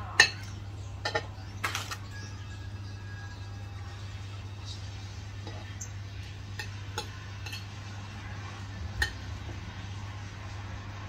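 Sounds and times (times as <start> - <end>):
steady low hum: 0.0 - 11.0
cutlery clinking on plate: 0.2 - 2.1, 6.5 - 7.8.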